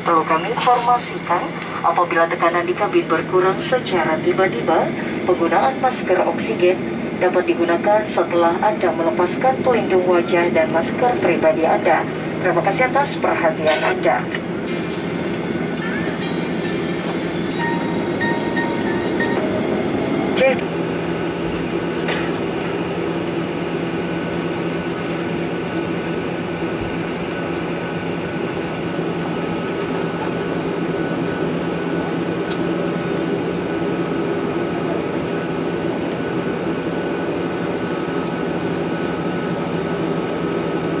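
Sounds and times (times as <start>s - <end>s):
jet engines roaring: 0.0s - 41.0s
thin engine whine: 10.3s - 41.0s.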